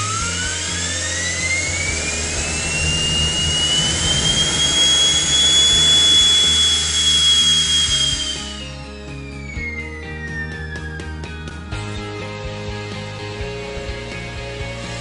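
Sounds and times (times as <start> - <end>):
exhaust rushing: 0.0 - 9.6
jet engine whine: 0.0 - 12.1.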